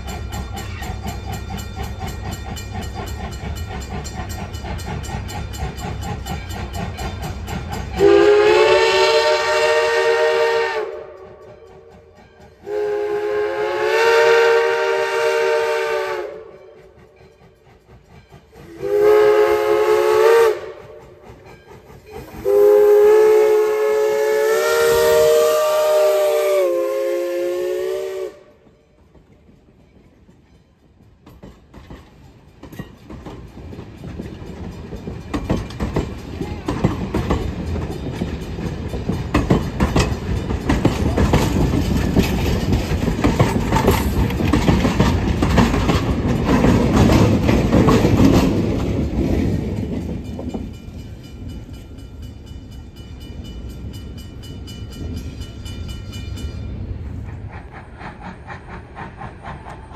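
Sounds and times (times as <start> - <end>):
train rumbling: 0.0 - 59.9
steam whistle blasts: 8.0 - 11.4, 12.6 - 16.8, 18.6 - 21.0, 22.3 - 28.6.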